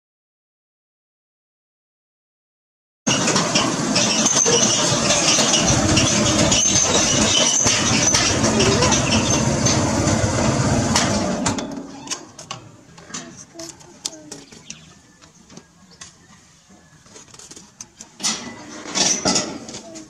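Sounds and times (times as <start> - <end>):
motorcycle engine running: 4.2 - 11.7.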